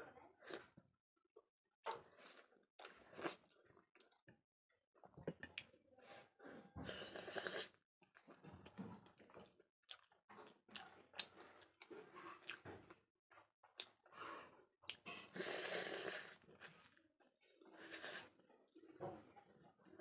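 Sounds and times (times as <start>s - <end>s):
person chewing food: 1.9s - 4.2s, 6.9s - 19.0s.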